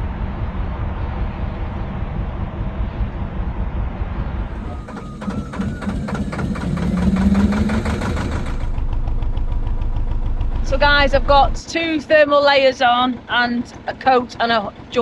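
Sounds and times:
diesel engine knocking: 4.5 - 15.0.

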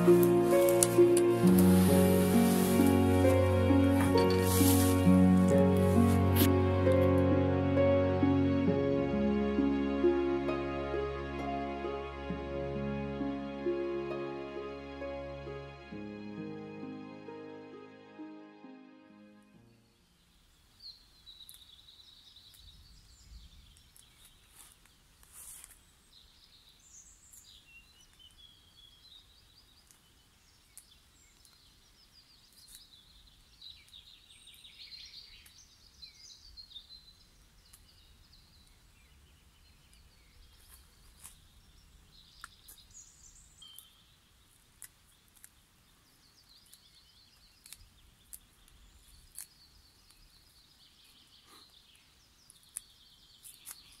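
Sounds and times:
birds chirping and trilling: 25.8 - 54.0.

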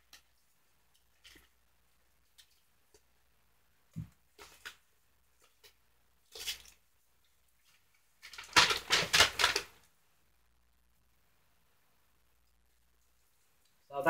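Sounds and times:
paper crinkling and rustling: 7.6 - 9.8.

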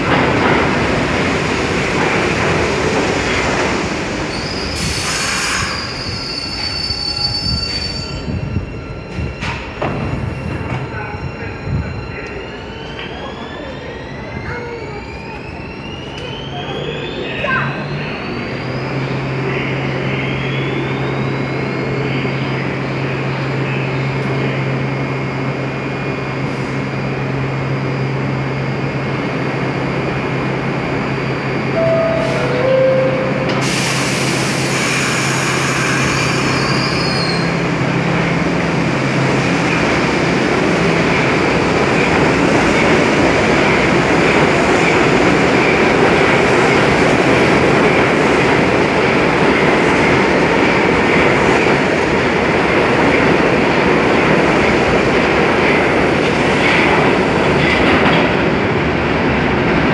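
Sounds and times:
train hum at platform: 0.0 - 59.9
two-note door chime: 31.8 - 33.6.

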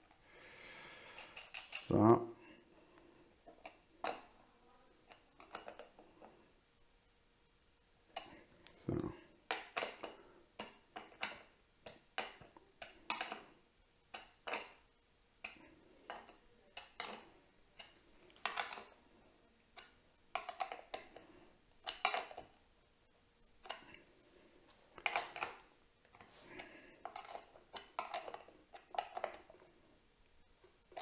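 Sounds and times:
small metal parts clicking: 26.6 - 29.5.

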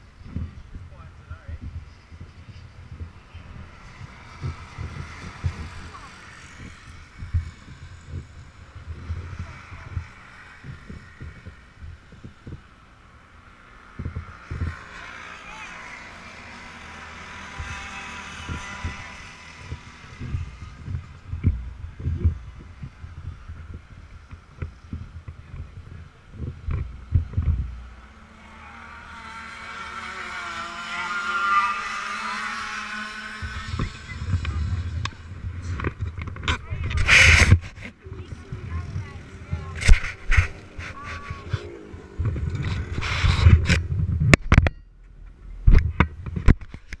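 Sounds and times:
wind buffeting microphone: 0.0 - 15.2, 16.1 - 47.0
kart engine hum: 0.0 - 47.0
low rumbling rubbing: 16.7 - 47.0.

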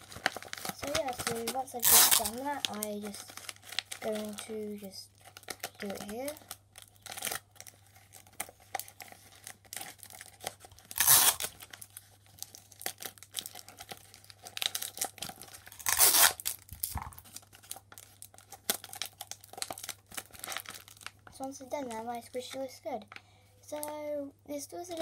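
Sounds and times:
plastic crinkling: 0.0 - 25.0
sticky tape ripping: 0.6 - 2.5, 10.8 - 11.6, 14.6 - 17.3.

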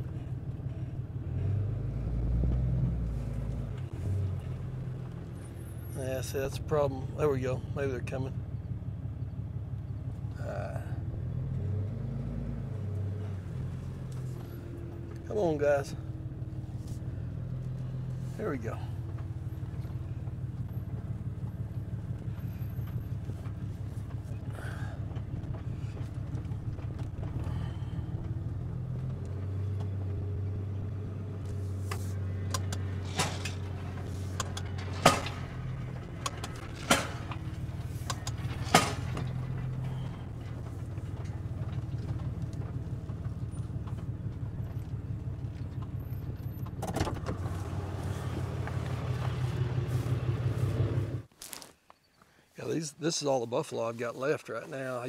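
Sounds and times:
truck engine running slowly: 0.0 - 51.3
sharp knocks and clanks: 32.4 - 44.1.

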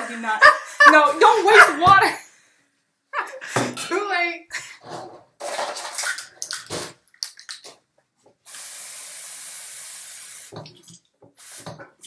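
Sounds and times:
tap running water: 5.4 - 12.0.

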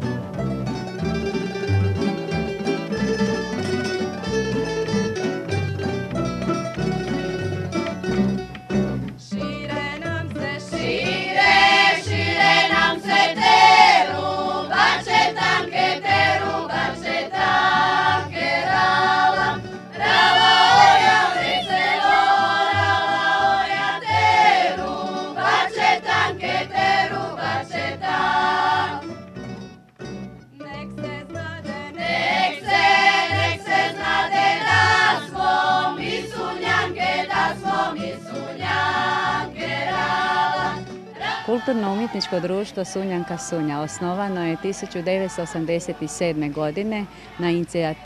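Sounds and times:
double bass plucking: 0.0 - 48.0
women singing folk song: 9.1 - 29.2, 30.5 - 48.0.

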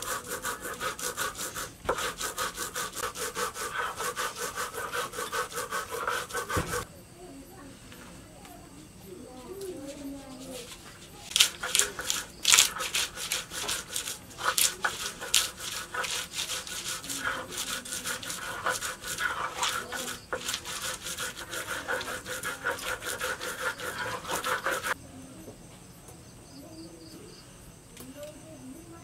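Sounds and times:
stone grinding scraping strokes: 0.0 - 6.9, 9.7 - 25.0.

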